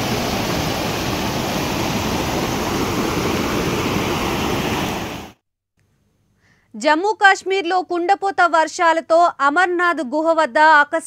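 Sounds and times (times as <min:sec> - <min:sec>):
floodwater rushing over boulders: 0:00.0 - 0:05.4.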